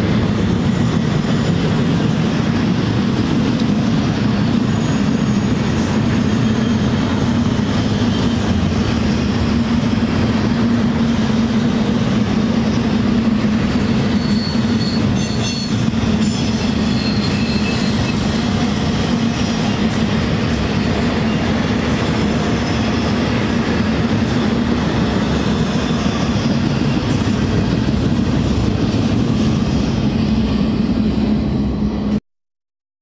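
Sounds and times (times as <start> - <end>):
steel wheels rumbling on track: 0.0 - 32.2
faint wheel squeal: 4.3 - 7.0, 13.8 - 15.8, 16.4 - 18.4.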